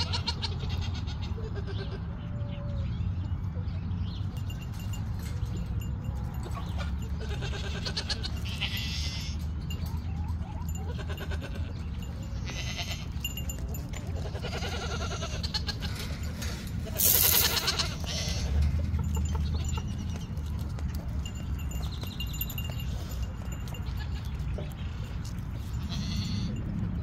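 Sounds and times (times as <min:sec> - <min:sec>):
goats bleating: 0:00.0 - 0:02.1, 0:07.2 - 0:09.6, 0:10.8 - 0:13.5, 0:14.1 - 0:18.8, 0:25.7 - 0:26.6.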